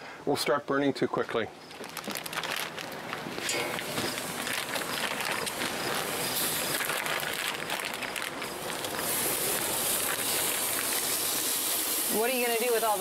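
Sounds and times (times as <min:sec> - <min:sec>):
chicken wings sizzling on a grill: 0:03.5 - 0:13.0.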